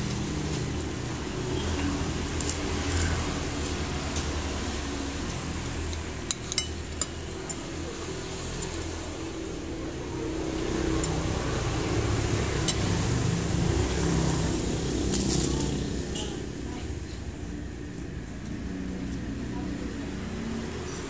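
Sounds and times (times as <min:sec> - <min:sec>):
road traffic rumble: 0:00.0 - 0:21.0
metal spoon clinking on plate: 0:06.3 - 0:07.7.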